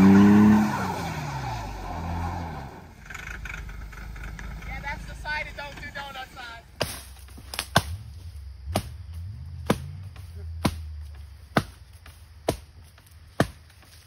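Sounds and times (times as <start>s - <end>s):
axe chopping firewood: 6.8s - 14.0s.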